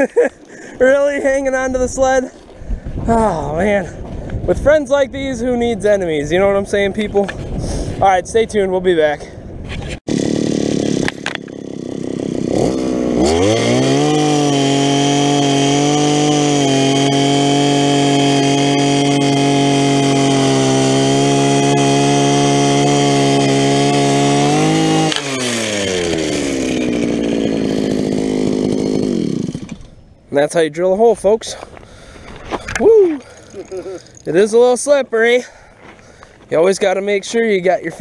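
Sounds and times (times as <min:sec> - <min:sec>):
auger drilling through ice: 0:09.8 - 0:30.0, 0:31.8 - 0:34.4
ice auger engine revving: 0:10.1 - 0:30.0, 0:33.2 - 0:34.4.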